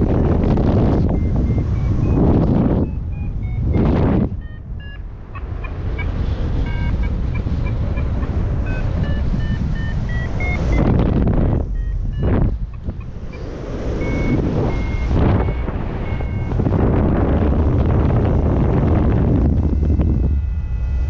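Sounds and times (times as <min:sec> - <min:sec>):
variometer beeping: 0:00.0 - 0:21.0
wind rushing over microphone: 0:00.0 - 0:21.0.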